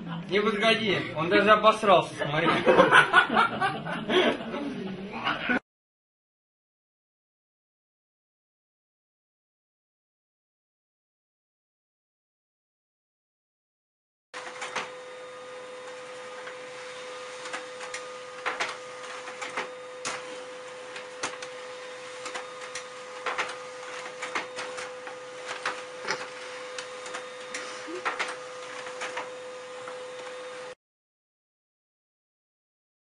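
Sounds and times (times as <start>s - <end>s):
printer humming: 14.4s - 30.8s.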